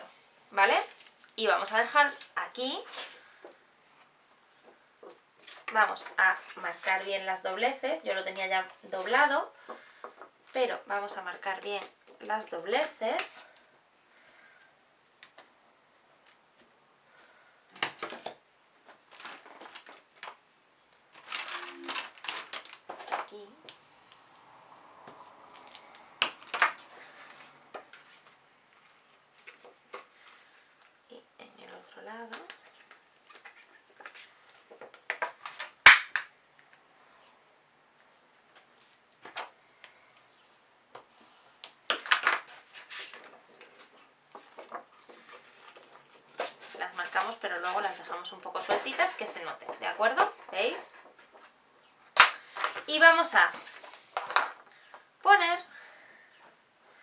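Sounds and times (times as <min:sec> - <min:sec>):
plastic sheet crackling: 0:21.1 - 0:24.3.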